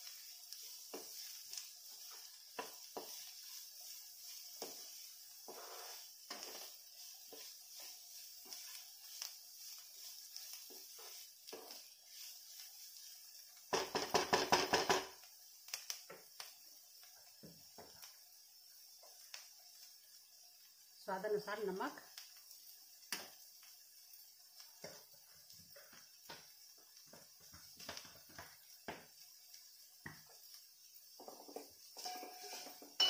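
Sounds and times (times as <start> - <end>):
spatula scraping in a wok: 0.0 - 15.1, 30.3 - 33.0
faint steady hiss: 0.0 - 33.0.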